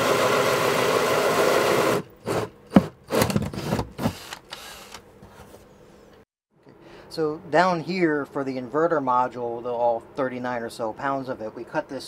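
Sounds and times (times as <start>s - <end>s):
drill driving a screw into wood: 0.0s - 5.0s.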